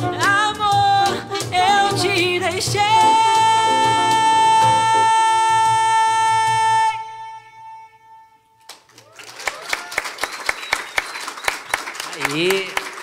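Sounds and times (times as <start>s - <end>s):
audience applause and cheers: 8.6s - 13.0s.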